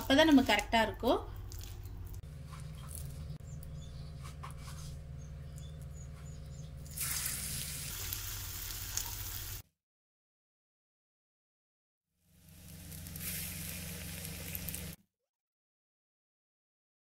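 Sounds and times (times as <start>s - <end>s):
low steady hum: 0.0s - 8.7s, 12.4s - 15.0s
faint wet handling sounds: 1.2s - 3.4s
batter sizzling in hot oil: 6.9s - 9.6s, 12.3s - 15.0s.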